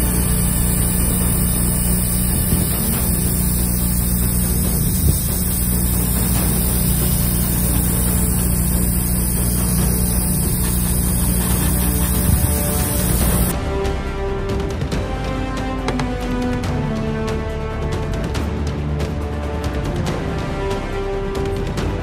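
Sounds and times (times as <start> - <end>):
airbrush hissing: 0.0 - 13.5
motor hum: 0.0 - 13.5.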